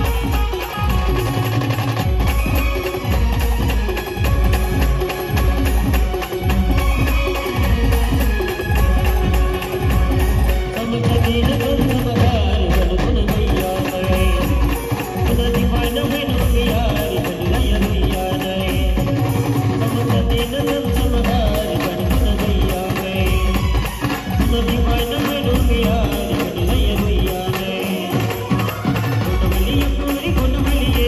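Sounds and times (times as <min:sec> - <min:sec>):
electronic keyboard melody: 0:00.0 - 0:22.6
drums beating: 0:00.0 - 0:31.0
live band over loudspeaker: 0:00.0 - 0:31.0.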